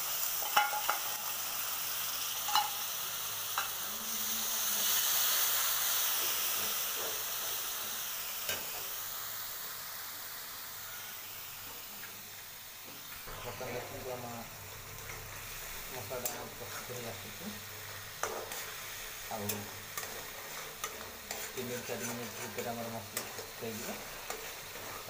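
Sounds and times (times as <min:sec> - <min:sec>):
paste sizzling in hot oil: 0:00.0 - 0:25.0
metal spatula clinking on pan: 0:00.4 - 0:01.2, 0:02.5 - 0:02.8.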